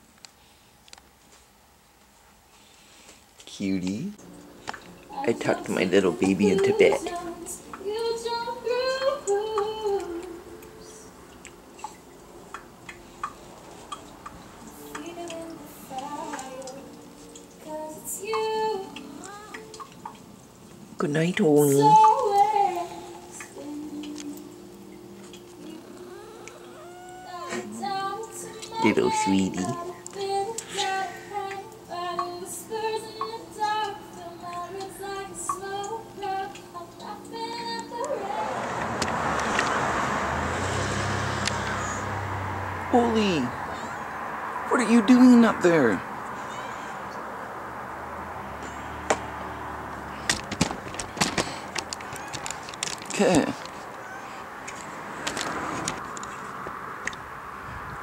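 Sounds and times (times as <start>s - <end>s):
faint music: 0.0s - 39.4s
person softly singing wordless tune: 5.0s - 11.2s, 14.6s - 20.4s, 21.0s - 39.4s
faint ticks: 6.4s - 10.8s, 11.4s - 20.8s, 21.9s - 28.8s, 29.6s - 38.2s.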